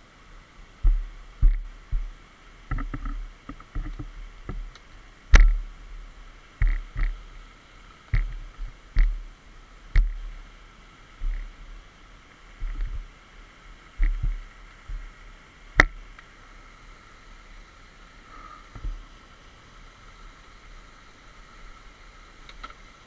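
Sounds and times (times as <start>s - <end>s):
faint steady hiss: 0.0s - 23.0s
low thuds and knocks: 0.8s - 4.7s, 8.1s - 9.2s, 12.6s - 13.0s, 14.0s - 15.1s.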